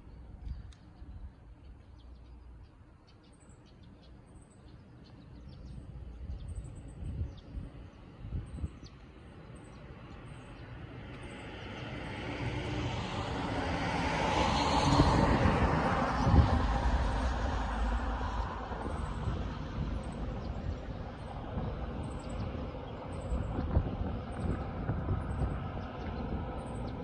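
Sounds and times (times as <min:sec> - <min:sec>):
vehicle approaching: 0:09.4 - 0:27.0.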